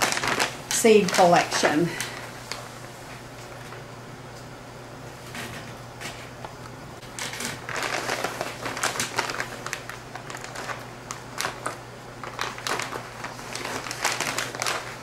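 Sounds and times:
plastic pouch crinkling: 0.0 - 2.6, 7.2 - 15.0.

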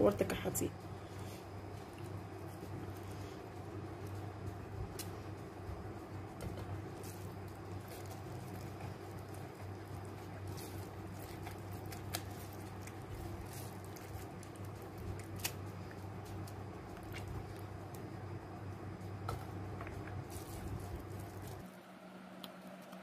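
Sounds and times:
steady low hum: 0.0 - 23.0
hands squishing wet rice: 1.0 - 18.2.

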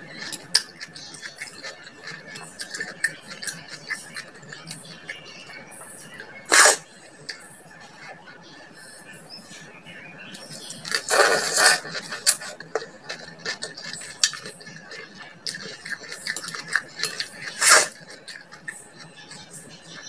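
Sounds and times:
chewing: 0.0 - 8.2, 10.4 - 20.0
person slurping food: 6.5 - 6.8, 10.9 - 14.7, 15.5 - 18.5.

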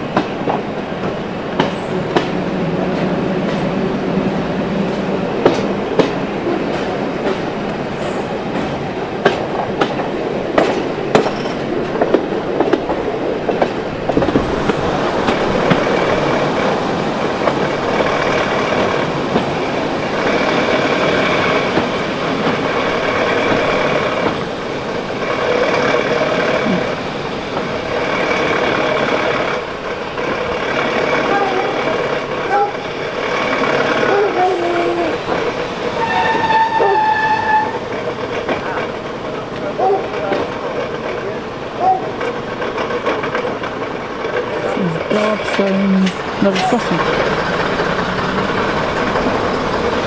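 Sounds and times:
train running drone: 0.0 - 50.0
train wheels clicking over rail joints: 0.0 - 50.0.

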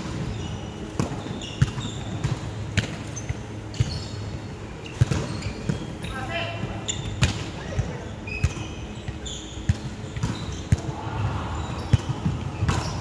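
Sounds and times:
sneaker squeaks on wooden floor: 0.3 - 2.4, 3.1 - 6.2, 6.8 - 10.7.

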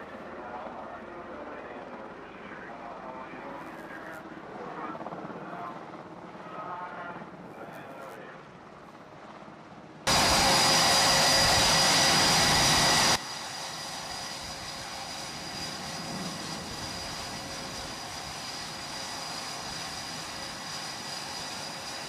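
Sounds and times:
jet engine whine: 10.1 - 22.0
loud jet engine roar: 10.1 - 22.0.

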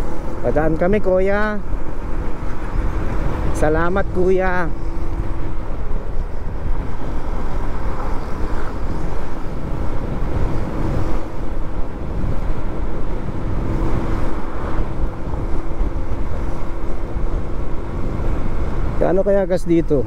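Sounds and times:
motorcycle engine hum: 0.0 - 20.0
wind on microphone: 0.0 - 20.0.

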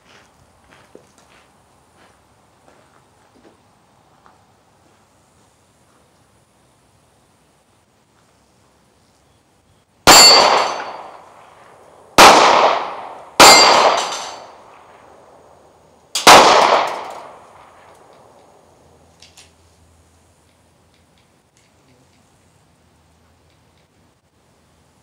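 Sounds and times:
pistol shots echoing: 10.1 - 15.5, 16.2 - 18.4.

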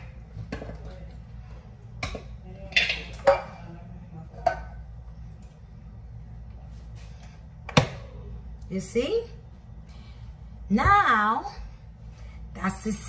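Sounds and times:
steady low hum: 0.0 - 13.0
metal pots clanking: 2.0 - 3.6.

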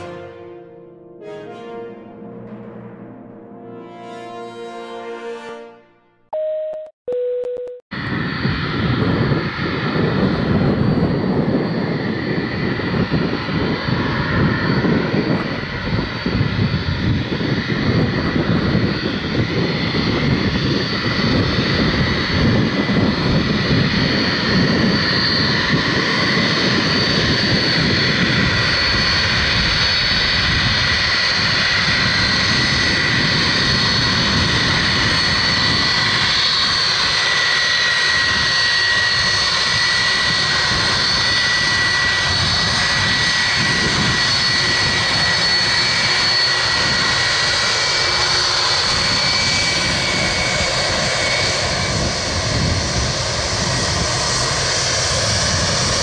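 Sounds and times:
jet engines rumbling and whining: 0.0 - 4.1, 7.9 - 56.0
music: 0.0 - 6.3
short beeping tones: 6.3 - 7.8.

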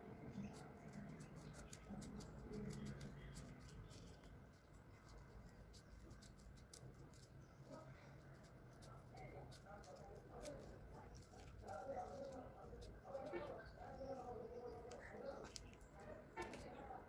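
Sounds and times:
scissors snipping newspaper: 0.5 - 4.3.

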